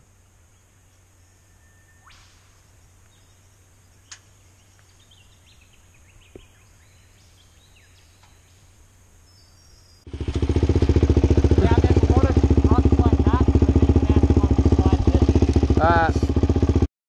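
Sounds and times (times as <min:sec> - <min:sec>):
faint bird chirps: 0:00.0 - 0:10.4
dirt bike engine running: 0:10.1 - 0:16.9.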